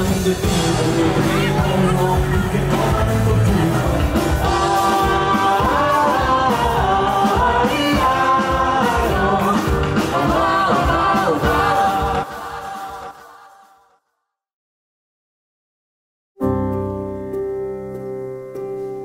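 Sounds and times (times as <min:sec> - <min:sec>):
song with full band: 0:00.0 - 0:13.8.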